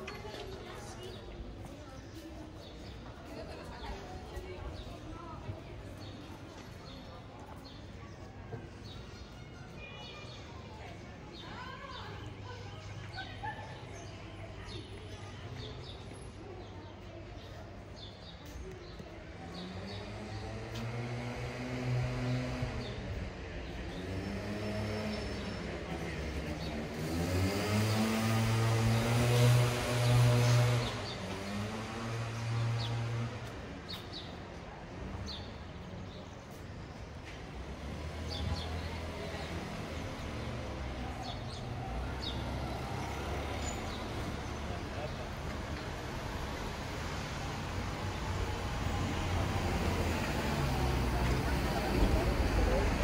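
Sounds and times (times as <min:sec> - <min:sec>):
low street rumble: 0:00.0 - 0:53.0
vehicle engine approaching: 0:19.4 - 0:33.8, 0:37.5 - 0:53.0.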